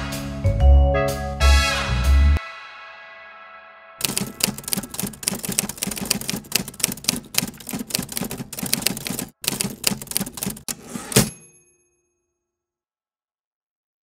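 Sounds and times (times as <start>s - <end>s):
music: 0.0s - 4.8s
typewriter keystrokes: 4.0s - 11.3s.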